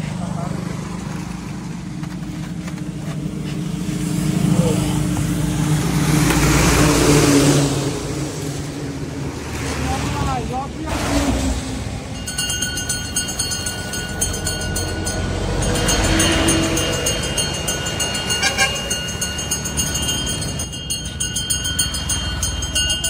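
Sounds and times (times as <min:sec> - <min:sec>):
roadside traffic: 0:00.0 - 0:23.0
vehicle passing: 0:00.0 - 0:23.0
pulsing high-pitched tones: 0:12.1 - 0:23.0.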